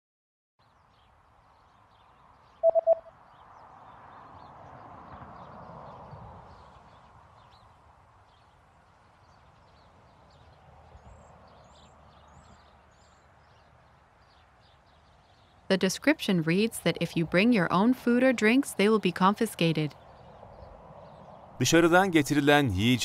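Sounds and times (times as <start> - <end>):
faint background noise: 0.6 - 23.0
electronic quiz beep: 2.6 - 3.1.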